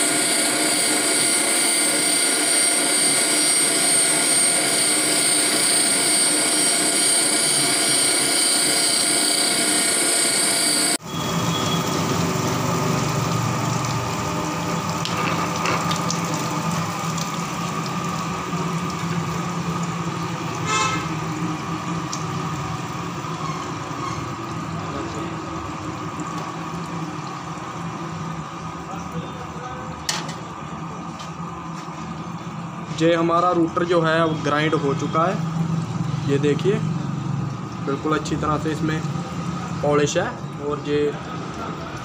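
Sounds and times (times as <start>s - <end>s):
grinding machine whine: 0.0s - 28.8s
coolant running: 0.0s - 42.0s
low machine hum: 0.0s - 42.0s.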